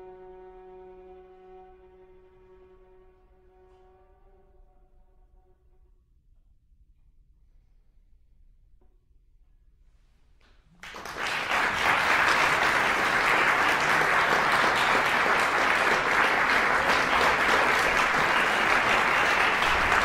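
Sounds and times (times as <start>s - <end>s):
audience applause: 10.8s - 20.0s.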